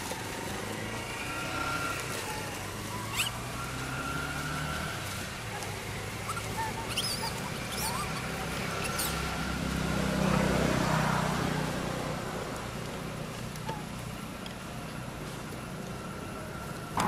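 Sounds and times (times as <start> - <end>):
rustling: 0.0 - 9.5
monkeys squeaking: 1.4 - 3.4, 4.9 - 9.5.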